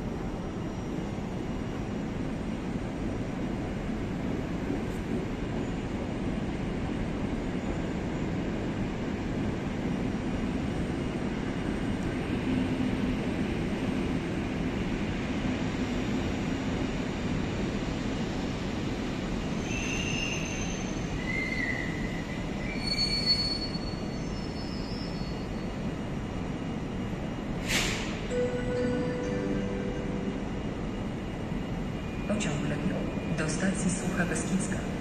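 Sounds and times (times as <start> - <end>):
train rumbling over rails: 0.0 - 35.0
high-pitched wheel squeals: 22.7 - 24.0.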